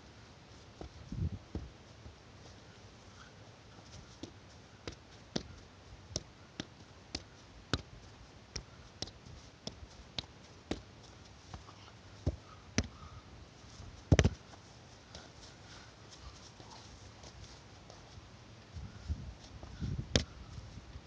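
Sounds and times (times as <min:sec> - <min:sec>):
soccer ball knocks: 0:12.2 - 0:12.9, 0:14.1 - 0:14.4
ball double thud: 0:14.1 - 0:14.4.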